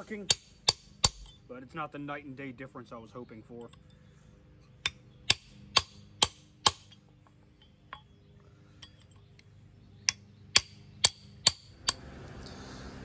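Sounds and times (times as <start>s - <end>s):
hammer striking chisel on metal: 0.0s - 1.4s, 4.8s - 7.0s, 10.1s - 12.0s.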